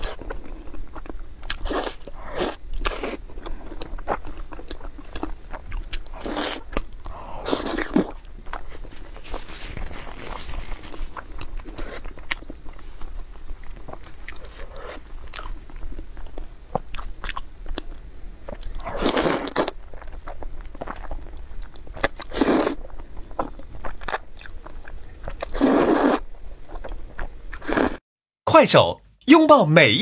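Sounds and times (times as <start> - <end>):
person chewing noodles: 0.0 - 28.0
slurping noodles: 18.8 - 19.7, 22.2 - 22.8, 25.4 - 26.2, 27.6 - 28.0.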